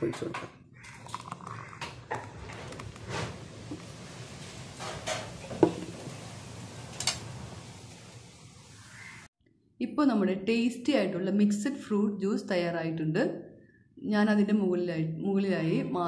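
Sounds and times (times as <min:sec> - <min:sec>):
thick juice pouring into glass: 0:00.9 - 0:03.0.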